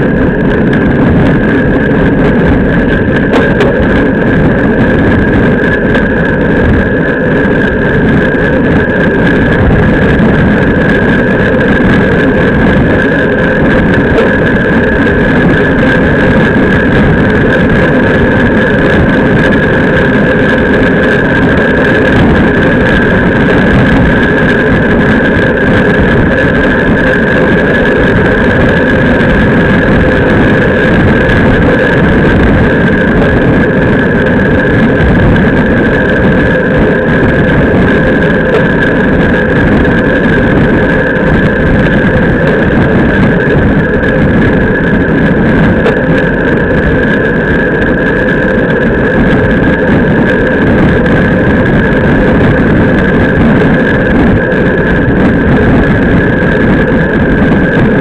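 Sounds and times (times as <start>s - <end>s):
high whine: 0.0s - 58.0s
wind and road noise: 0.0s - 58.0s.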